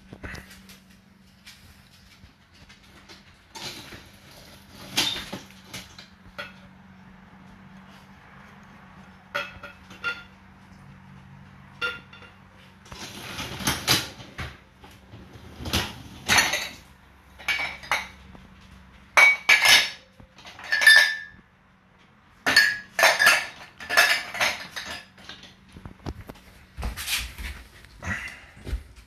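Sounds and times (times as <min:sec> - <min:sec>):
dishes clinking in dishwasher: 0:04.8 - 0:06.7, 0:09.3 - 0:10.4, 0:11.7 - 0:14.6, 0:15.6 - 0:18.4, 0:19.1 - 0:21.4, 0:22.4 - 0:25.6.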